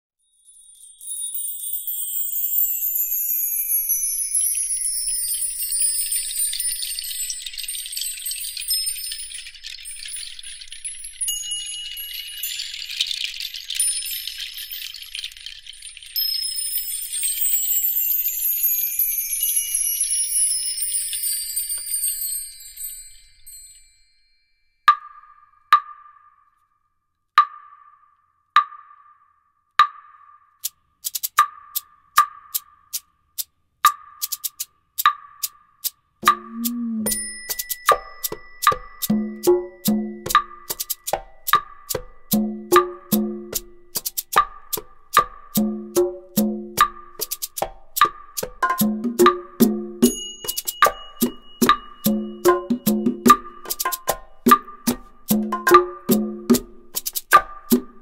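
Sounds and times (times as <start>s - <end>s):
shimmering high chimes: 0.2s - 24.9s, 36.3s - 41.2s, 50.0s - 54.8s.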